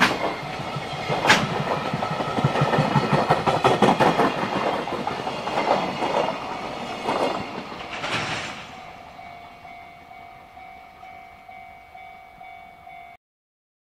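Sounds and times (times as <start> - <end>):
freight train clattering over rail joints: 0.0 - 9.2
level crossing warning bell ringing: 6.3 - 8.0, 8.6 - 13.2.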